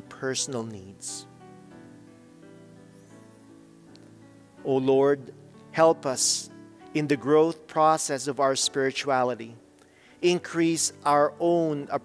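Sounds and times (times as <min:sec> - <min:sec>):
soft instrumental music: 0:00.0 - 0:12.0.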